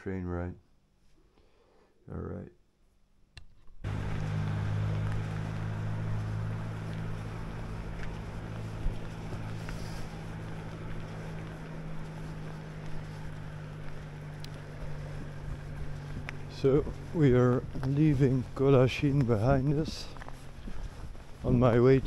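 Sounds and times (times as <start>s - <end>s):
low engine hum: 3.8s - 22.0s
faint clicks: 12.5s - 15.1s.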